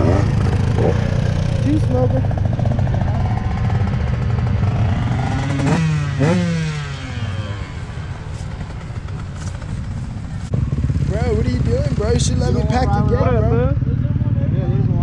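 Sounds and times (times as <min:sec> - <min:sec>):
motocross bike engines revving: 0:00.0 - 0:15.0.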